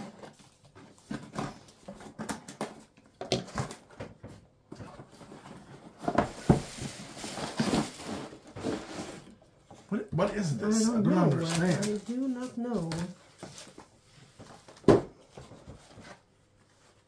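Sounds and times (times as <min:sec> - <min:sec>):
cardboard box rustling and knocking: 0:00.0 - 0:09.3.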